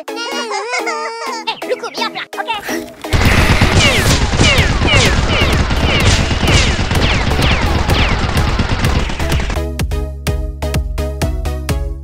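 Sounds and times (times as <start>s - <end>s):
rapid gunfire: 3.1s - 9.6s.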